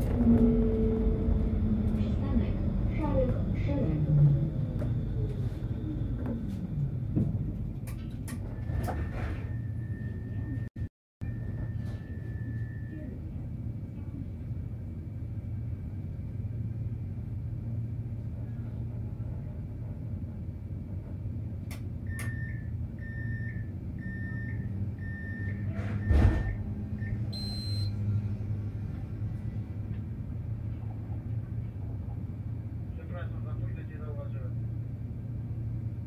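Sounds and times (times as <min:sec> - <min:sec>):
tram humming: 0:00.0 - 0:36.0
door warning beeps: 0:22.1 - 0:28.0
tram doors thudding shut: 0:25.8 - 0:26.7.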